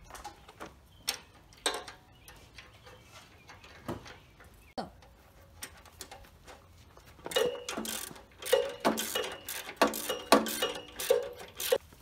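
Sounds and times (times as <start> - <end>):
wrench clicking on metal: 7.3 - 11.8.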